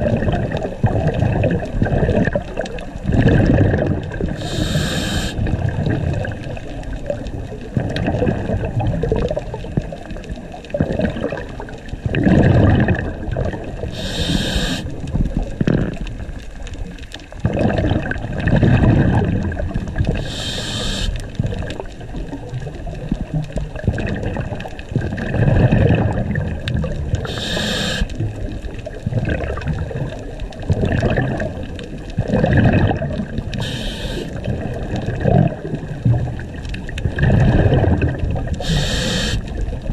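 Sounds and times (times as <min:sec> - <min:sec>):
exhaled air bubbling: 0:00.0 - 0:39.9
regulator inhalation hiss: 0:04.4 - 0:05.4, 0:14.0 - 0:14.9, 0:20.2 - 0:21.2, 0:27.2 - 0:28.1, 0:33.6 - 0:34.3, 0:38.6 - 0:39.4.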